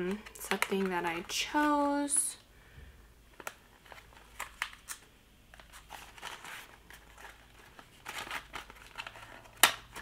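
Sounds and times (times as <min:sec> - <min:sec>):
packaging crinkling and rustling: 0:03.3 - 0:10.0.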